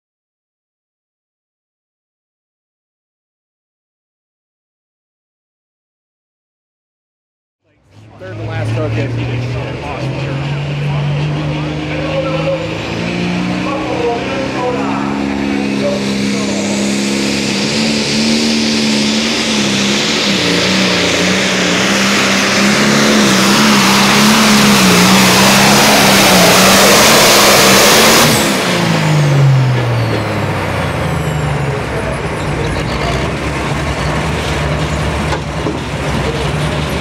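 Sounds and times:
tractor diesel engine at full throttle: 7.7s - 37.0s.

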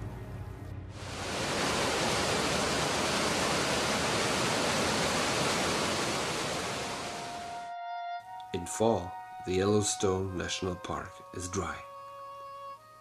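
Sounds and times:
river rapids rushing: 1.0s - 7.6s.

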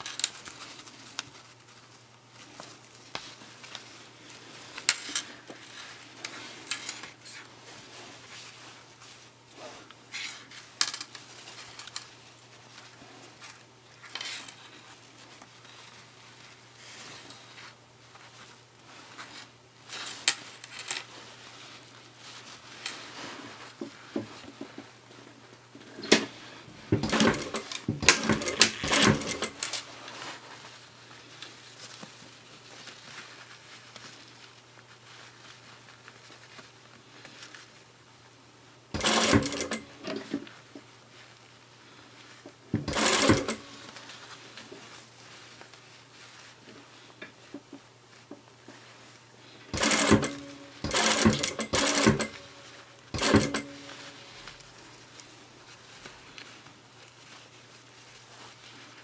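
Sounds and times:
fabric rustling: 0.0s - 59.0s
sewing machine stitching: 26.9s - 29.8s, 39.0s - 40.4s, 42.8s - 44.0s, 49.7s - 54.3s.

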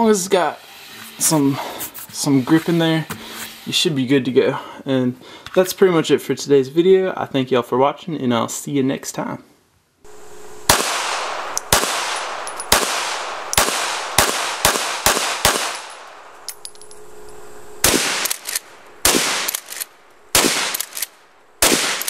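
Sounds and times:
gunshots: 10.6s - 16.5s, 17.8s - 22.0s.

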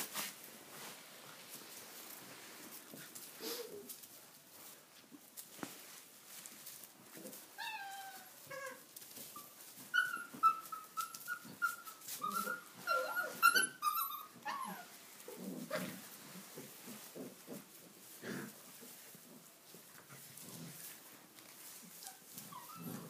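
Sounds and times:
straw rustling: 0.0s - 13.9s, 14.5s - 23.0s
puppies yelping and whining: 7.6s - 15.0s, 21.9s - 23.0s.

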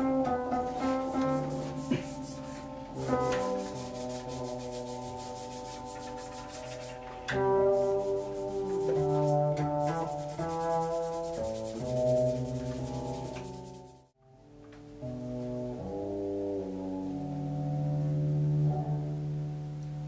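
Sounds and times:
electric upright bass bowed notes: 7.1s - 13.2s, 14.4s - 20.0s.

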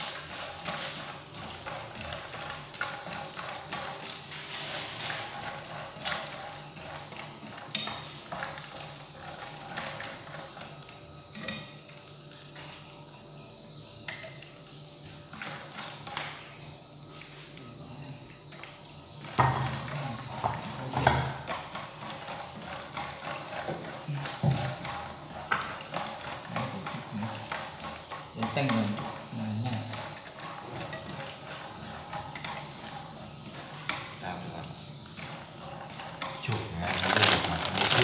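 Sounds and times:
chopsticks scraping a pan: 0.0s - 11.8s, 19.4s - 34.2s, 35.2s - 38.0s
pasta sizzling in a pan: 0.0s - 38.0s.

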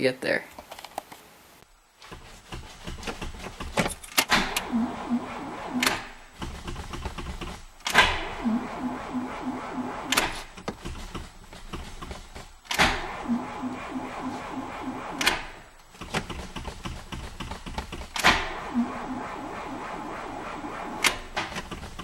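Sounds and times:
rattles and knocks: 2.0s - 4.3s, 6.4s - 7.7s, 10.6s - 12.6s, 15.9s - 18.3s.

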